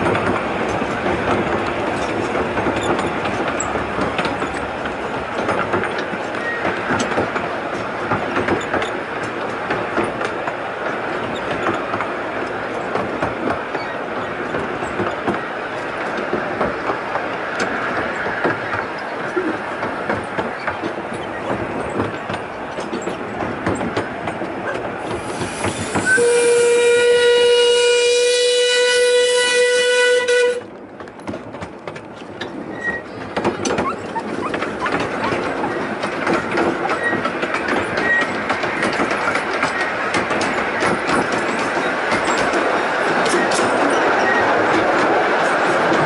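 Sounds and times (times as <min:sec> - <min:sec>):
train rumbling and rattling: 0:00.0 - 0:46.0
wheels clicking over rail joints: 0:00.0 - 0:46.0.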